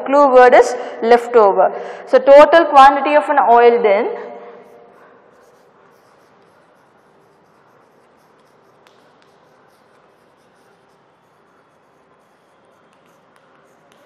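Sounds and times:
chalk scratching on chalkboard: 4.6 - 14.0.

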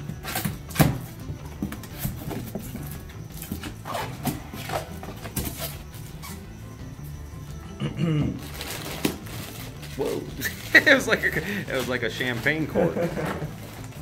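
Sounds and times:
cardboard and styrofoam rustling: 0.2 - 6.1, 8.4 - 14.0
packing tape ripping: 8.5 - 10.9.

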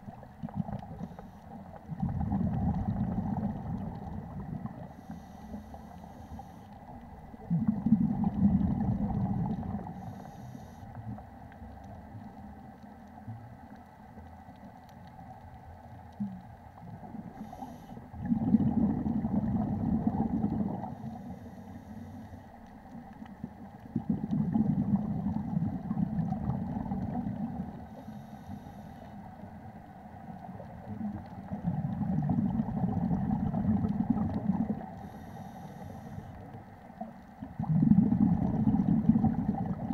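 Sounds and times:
regulator bubbles exhaled: 0.0 - 11.2, 16.2 - 28.4, 30.3 - 39.9
hissing inhalations: 17.4 - 18.0, 28.0 - 29.1, 35.0 - 36.4.

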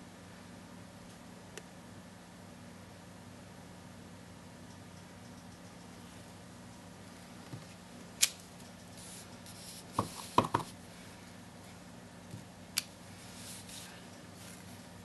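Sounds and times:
hard knocks on table: 10.0 - 10.7.

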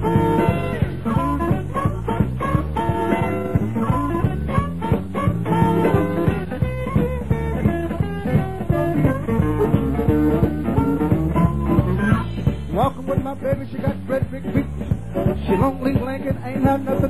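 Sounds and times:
bass and drum beat: 0.0 - 17.0.

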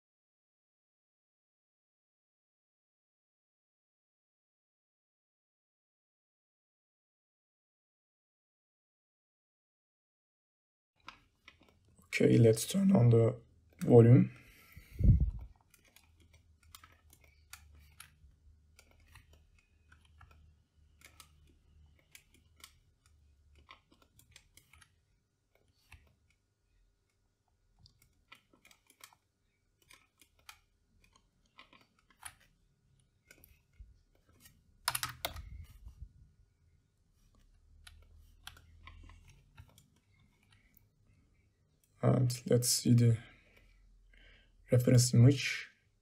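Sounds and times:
mouse and keyboard clicks: 14.6 - 26.4, 27.8 - 36.0, 37.3 - 40.8.

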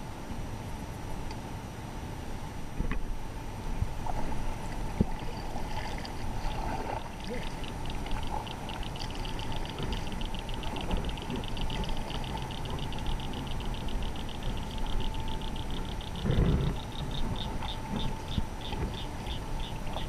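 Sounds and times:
water lapping against a kayak: 3.8 - 20.0.

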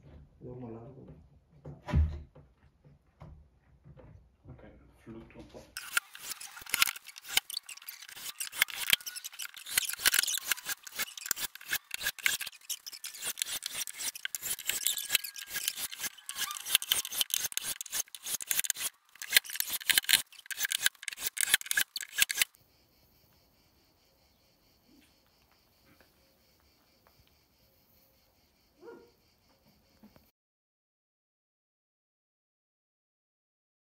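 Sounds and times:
cordless drill driving screws: 5.8 - 22.5.

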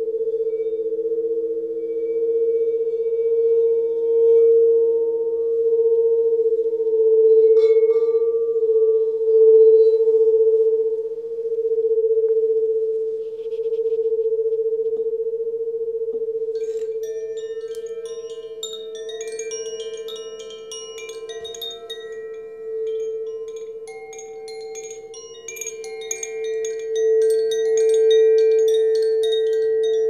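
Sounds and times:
crystal singing bowls humming: 0.0 - 30.0
faint high ring: 16.5 - 30.0.

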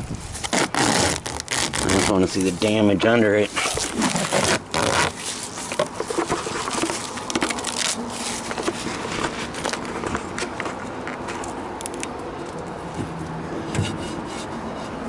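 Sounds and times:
rubber coating peeling off car: 0.2 - 11.5.

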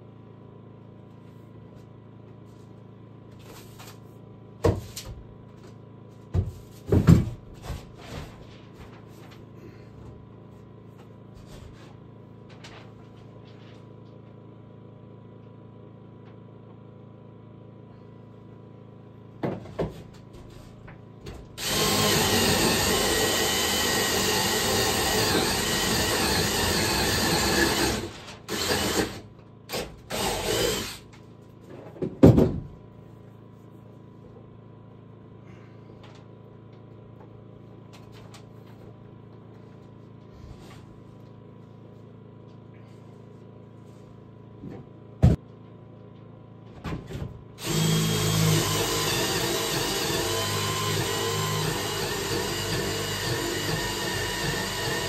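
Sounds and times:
power drill running into wood: 21.6 - 31.1, 47.6 - 55.0.

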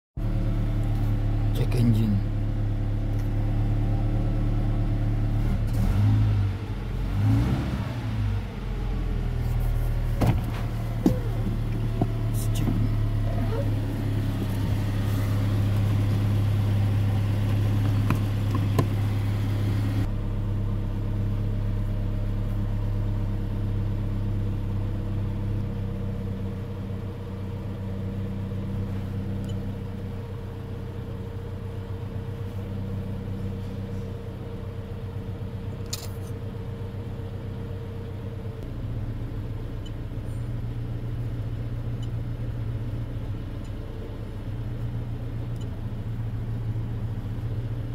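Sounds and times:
car engine idling: 0.2 - 7.3, 8.0 - 47.9.

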